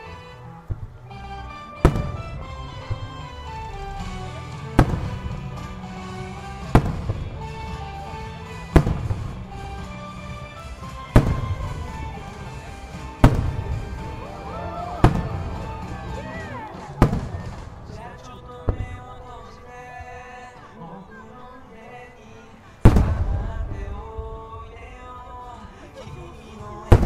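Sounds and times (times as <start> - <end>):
music: 0.0 - 27.0
firework bangs with echo: 1.8 - 19.2, 22.8 - 24.4.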